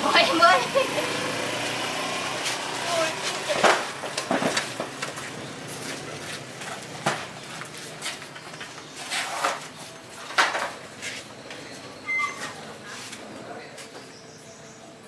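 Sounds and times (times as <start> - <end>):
irregular knocks and clatters: 3.6 - 8.8.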